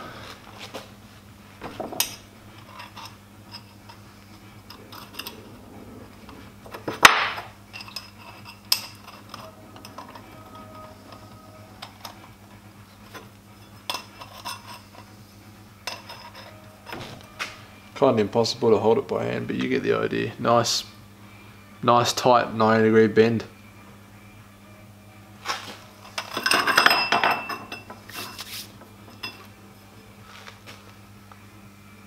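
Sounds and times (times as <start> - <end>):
metal pipes clinking together: 7.0 - 10.8, 26.0 - 28.5, 29.1 - 29.5.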